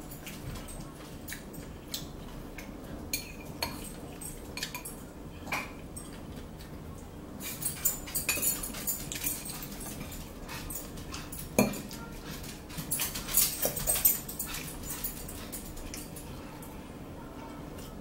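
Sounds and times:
chewing and mouth noises: 0.1 - 16.4.

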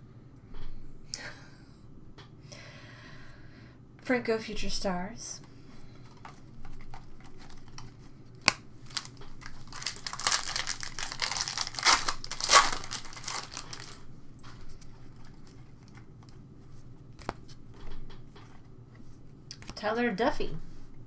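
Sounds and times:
cards being handled ticking: 6.0 - 16.5, 17.1 - 18.6
foil wrapper tearing and crinkling: 6.8 - 14.0.

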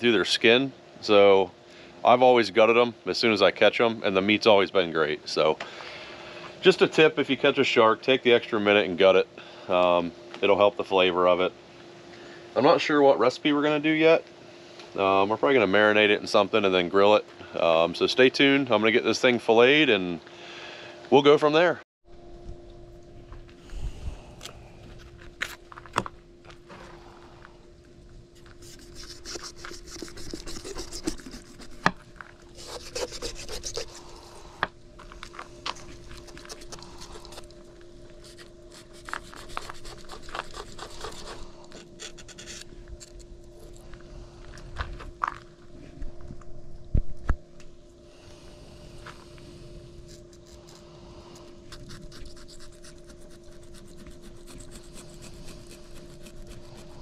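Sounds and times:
knife scraping along fish: 28.4 - 34.6, 35.8 - 37.5, 38.2 - 43.8, 50.0 - 57.0.

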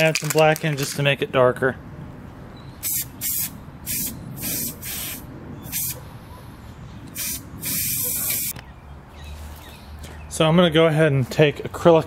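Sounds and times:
spray can hissing: 2.8 - 6.0, 7.2 - 8.5.

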